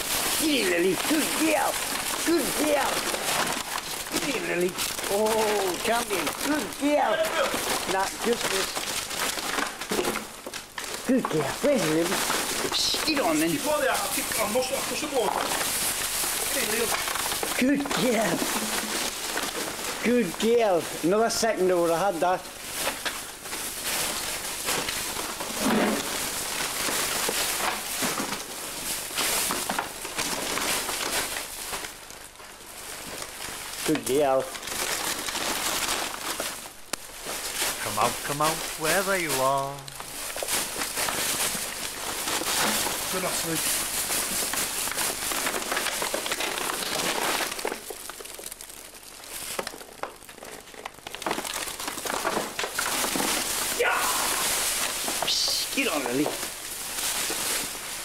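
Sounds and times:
rubble rustling and crackling: 0.0 - 58.0.

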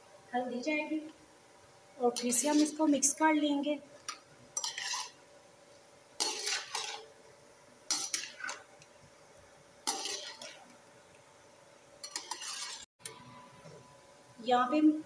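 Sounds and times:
metal spoon scraping metal pan: 2.1 - 2.9, 4.6 - 5.2, 6.2 - 7.1, 7.9 - 8.7, 9.8 - 10.7, 12.0 - 12.9.

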